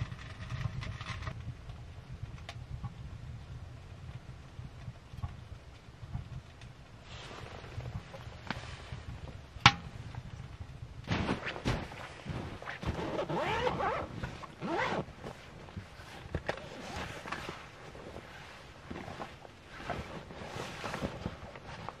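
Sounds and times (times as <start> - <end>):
thuds and rustling of gear: 7.2 - 22.0.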